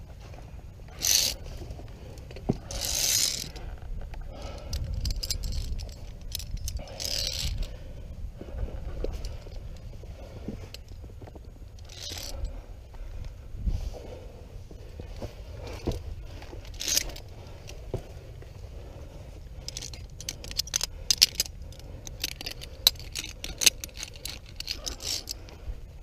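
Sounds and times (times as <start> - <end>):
carabiners clinking on cable: 0.9 - 7.9, 8.6 - 12.6, 15.0 - 18.1, 19.4 - 25.8.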